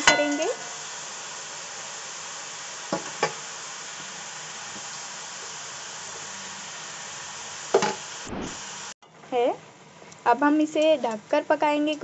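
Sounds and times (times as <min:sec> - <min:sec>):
food sizzling in hot fat: 0:00.0 - 0:09.0.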